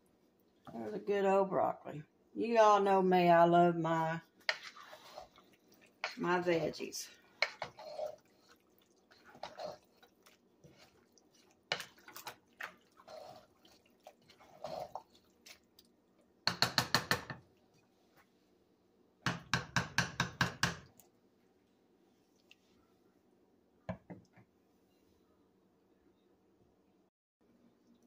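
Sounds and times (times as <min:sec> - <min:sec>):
spoon stirring thick pasta: 0:03.9 - 0:18.3.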